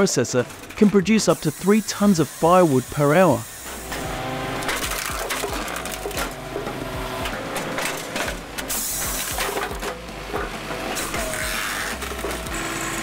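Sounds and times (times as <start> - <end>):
firewood processor humming: 0.0 - 13.0.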